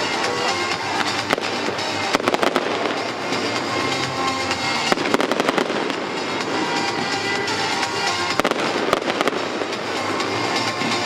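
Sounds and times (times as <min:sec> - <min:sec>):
fireworks bursting: 0:00.0 - 0:11.0
loud music: 0:00.0 - 0:11.0.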